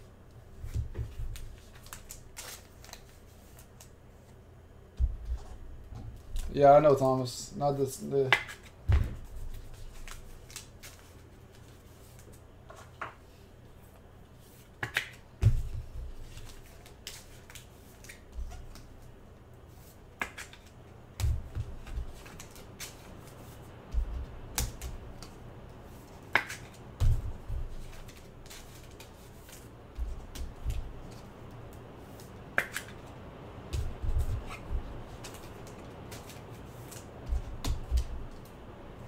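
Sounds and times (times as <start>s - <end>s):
cards clicking and snapping: 1.3s - 3.9s, 9.7s - 12.3s, 14.8s - 15.2s, 16.3s - 18.9s, 20.2s - 23.5s, 24.5s - 27.1s, 27.8s - 33.1s, 33.7s - 38.5s
cards thumping down: 8.2s - 11.1s, 14.8s - 18.9s, 26.3s - 31.3s, 33.7s - 38.4s.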